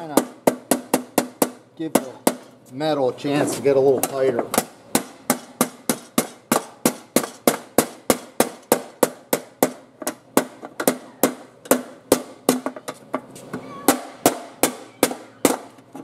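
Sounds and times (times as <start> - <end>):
hammer striking sheet metal: 4.0 - 12.8.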